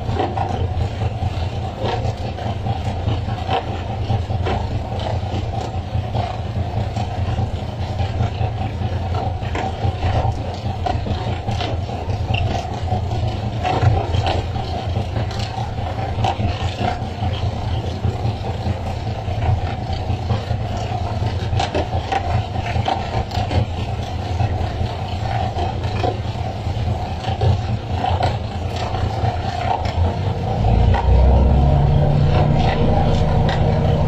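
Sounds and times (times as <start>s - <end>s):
boat engine running: 0.0s - 34.0s
water rushing: 29.5s - 34.0s.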